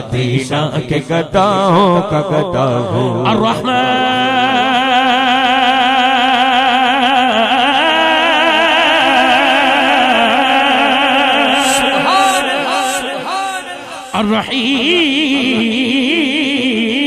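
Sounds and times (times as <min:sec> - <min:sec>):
man singing held note: 0:09.2 - 0:16.3.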